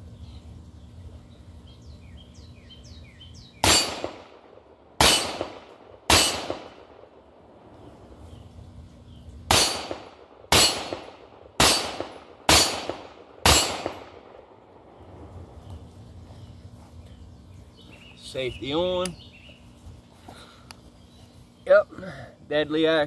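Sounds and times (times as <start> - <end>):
bullet pinging steel target: 3.6 - 7.0, 9.5 - 14.4
pistol shots: 3.6 - 7.2, 9.5 - 14.6.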